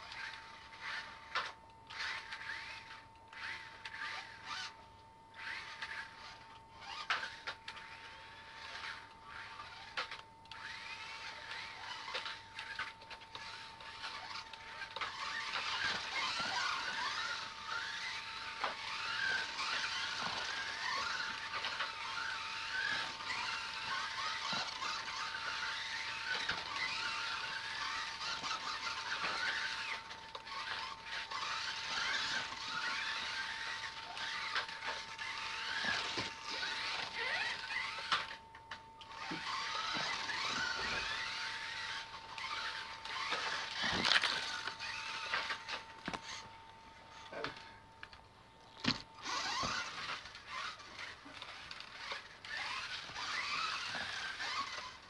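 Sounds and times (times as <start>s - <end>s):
rc car motors whining: 0.0s - 55.0s
tyre squeal: 18.8s - 38.2s, 49.2s - 55.0s.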